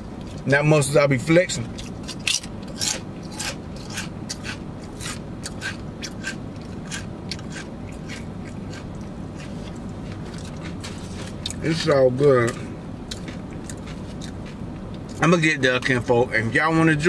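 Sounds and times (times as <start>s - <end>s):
person chewing crunchy chips: 1.6s - 15.2s.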